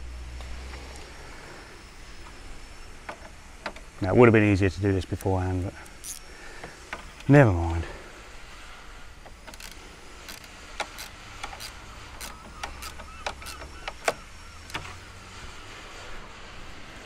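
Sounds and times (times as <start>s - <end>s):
spanner metallic clicks and taps: 9.2s - 14.9s.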